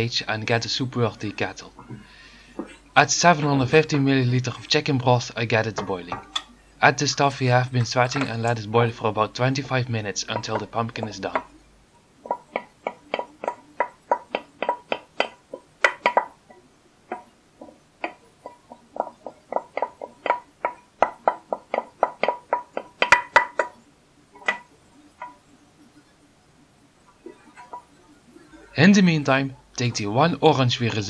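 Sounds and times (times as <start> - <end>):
spoon scraping frying pan: 0.5 - 11.6.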